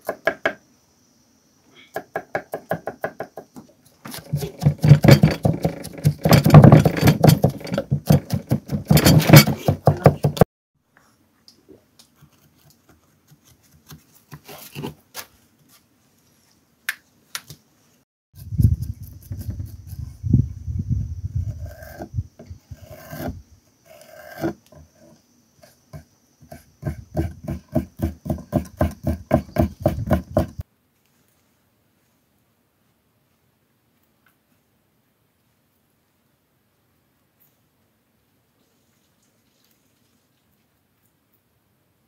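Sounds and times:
knife chopping on wooden board: 0:26.5 - 0:30.6.

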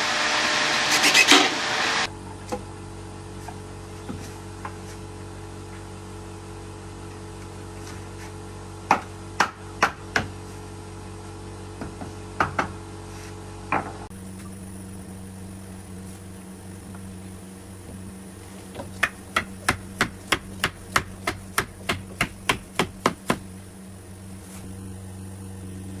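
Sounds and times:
hammer striking wood: 0:08.9 - 0:10.4, 0:11.8 - 0:12.8, 0:18.8 - 0:23.5.

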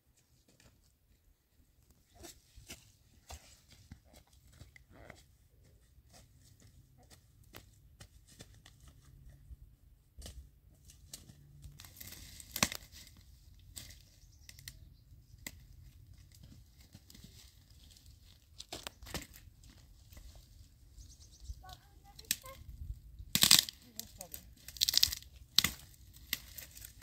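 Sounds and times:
brushwood crackling and snapping: 0:11.1 - 0:14.8, 0:15.4 - 0:20.3, 0:23.2 - 0:27.0
sharp cracks: 0:23.3 - 0:23.8.

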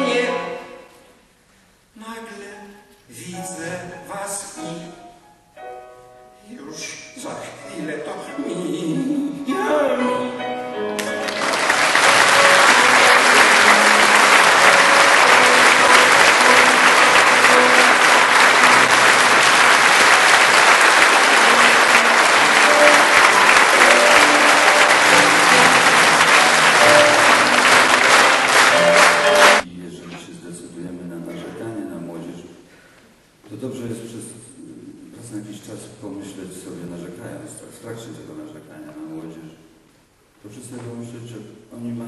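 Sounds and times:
piano playing: 0:00.0 - 0:01.0, 0:02.4 - 0:29.7
man speaking: 0:02.0 - 0:05.0, 0:06.5 - 0:10.4, 0:29.6 - 0:32.5, 0:33.5 - 0:39.6
audience applause: 0:11.0 - 0:29.7.

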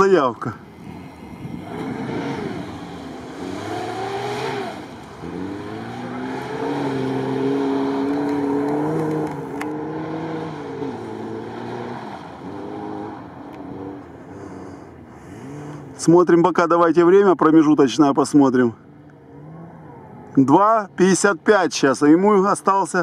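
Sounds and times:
car engine revving hard: 0:00.8 - 0:16.0.

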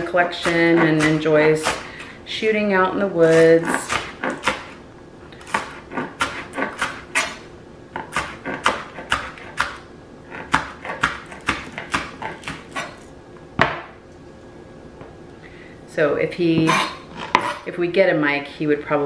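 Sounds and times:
knife chopping on cutting board: 0:00.0 - 0:01.8, 0:03.2 - 0:04.8, 0:05.4 - 0:07.4, 0:08.0 - 0:09.8, 0:10.4 - 0:13.0.

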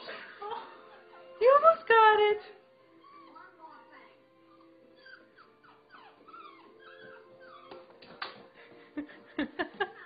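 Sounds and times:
dog whimpering: 0:02.9 - 0:03.6, 0:04.4 - 0:08.0.

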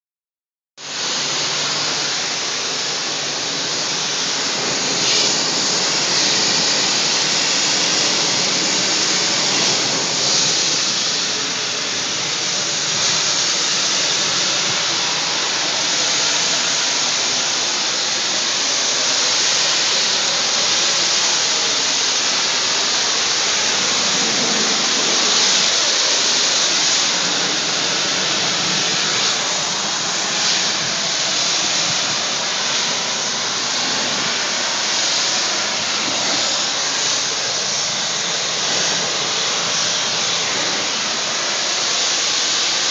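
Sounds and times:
water spray hissing on siding: 0:00.8 - 0:42.9.

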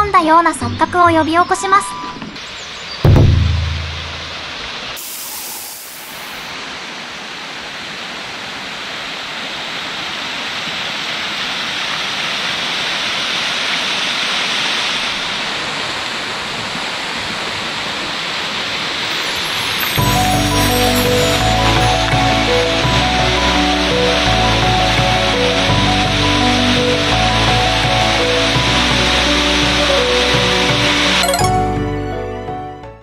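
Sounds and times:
waterfall rushing: 0:02.4 - 0:31.8
brief high hiss: 0:03.8 - 0:06.5.

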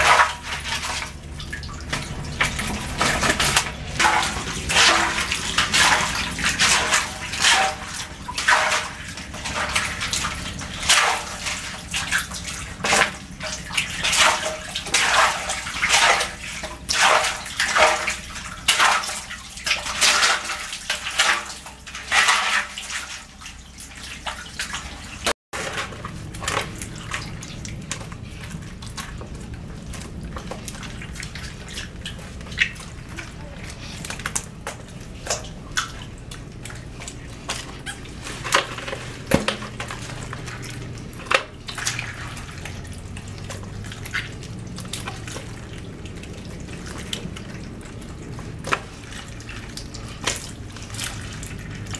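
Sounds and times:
splashing in shallow muddy water: 0:00.0 - 0:51.9.

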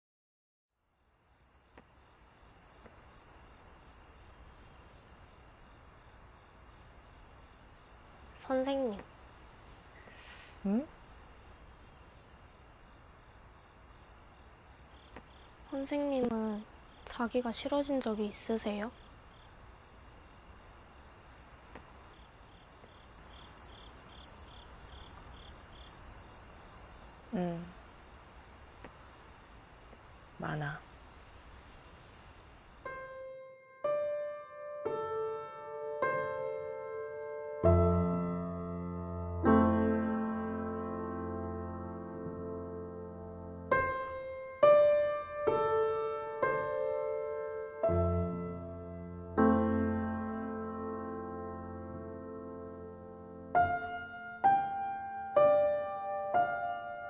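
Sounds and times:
crickets chirping: 0:00.7 - 0:33.4, 0:36.2 - 0:57.0.

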